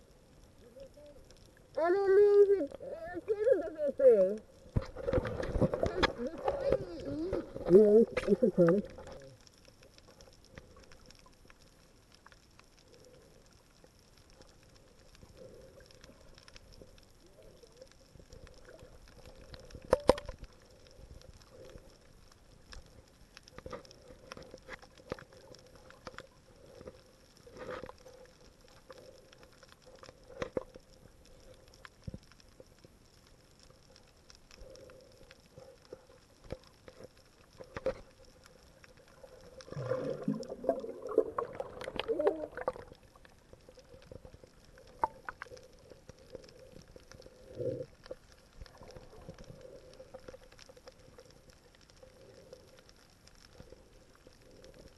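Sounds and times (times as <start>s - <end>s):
muffled underwater water noise: 0.0s - 54.9s
small clicks and knocks: 18.5s - 20.7s, 28.7s - 30.9s, 35.1s - 39.2s.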